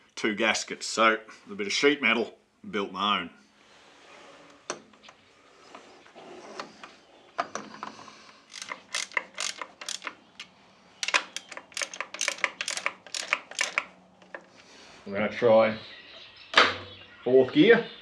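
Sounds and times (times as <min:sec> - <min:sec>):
hand tool clicking: 0:08.5 - 0:14.6.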